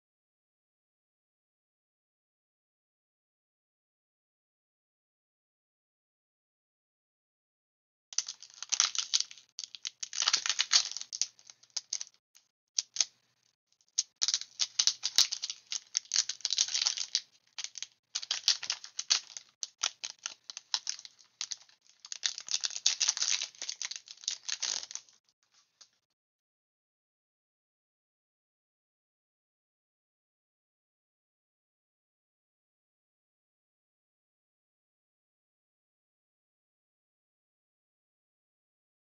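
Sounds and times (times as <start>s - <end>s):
foil wrapper crinkling and tearing: 8.2s - 12.2s, 12.8s - 13.1s, 14.0s - 25.2s.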